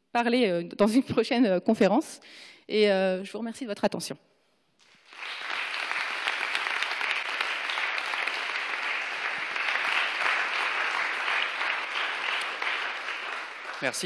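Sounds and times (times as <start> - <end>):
audience applauding: 4.8 - 14.0.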